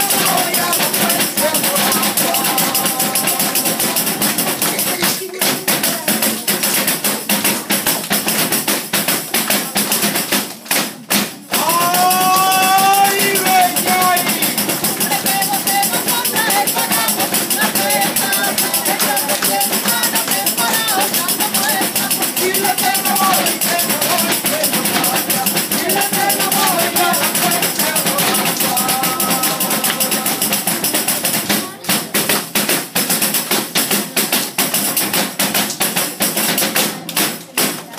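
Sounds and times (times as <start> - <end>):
person singing: 0.0 - 6.5, 11.5 - 31.2
tambourine struck in rhythm: 0.0 - 37.8.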